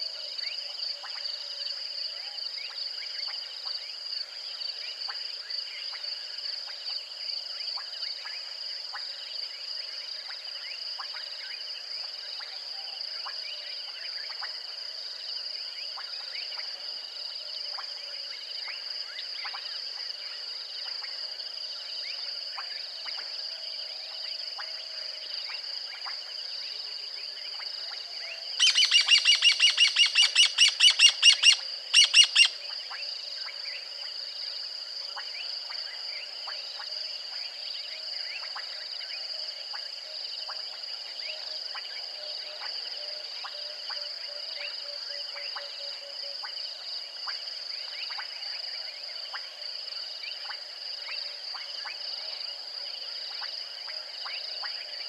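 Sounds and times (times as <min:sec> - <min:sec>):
high insect chorus: 0:00.0 - 0:55.0
bird calling repeated notes: 0:28.6 - 0:32.5.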